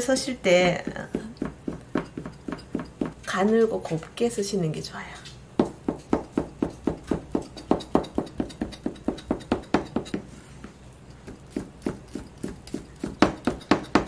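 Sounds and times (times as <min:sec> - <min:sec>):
knife chopping on plastic board: 0:00.6 - 0:03.3, 0:05.6 - 0:14.0.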